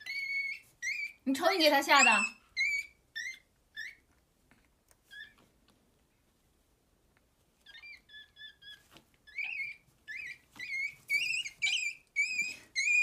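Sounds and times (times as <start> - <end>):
baby monkey squealing: 0.0 - 4.0, 5.1 - 5.4, 7.6 - 13.0.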